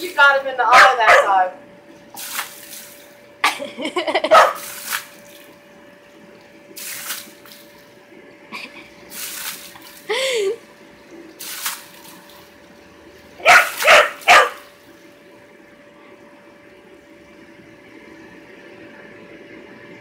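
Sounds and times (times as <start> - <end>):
dog barking: 0.7 - 1.4, 4.3 - 4.7, 13.4 - 14.7
hose spray splash: 2.1 - 3.0, 4.4 - 5.5, 6.8 - 7.8, 9.1 - 10.1, 11.4 - 12.5, 13.5 - 14.6.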